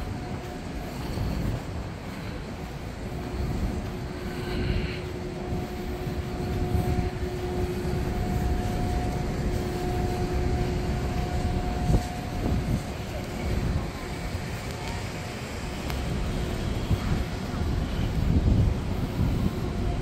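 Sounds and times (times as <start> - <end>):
low rumble: 0.0 - 14.7
ventilation machinery hum: 0.0 - 20.0.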